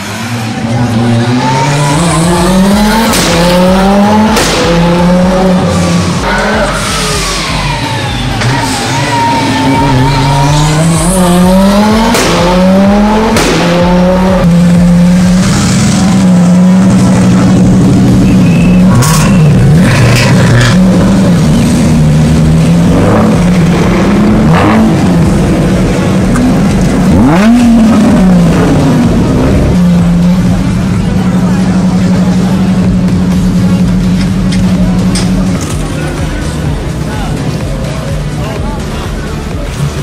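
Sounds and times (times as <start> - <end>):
car engine revving hard: 0.0 - 7.7, 8.4 - 37.9
tyres squealing: 5.7 - 12.0.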